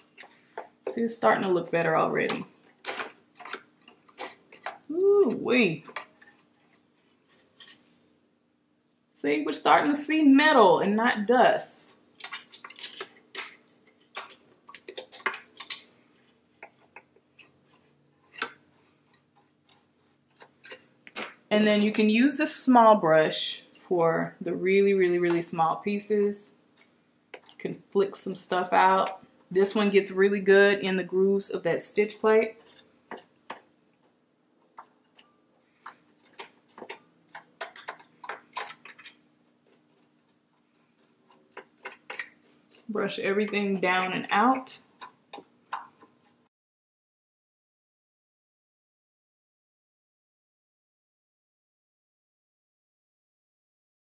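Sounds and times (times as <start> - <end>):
brush scratching machine parts: 2.9 - 8.1, 31.2 - 46.5.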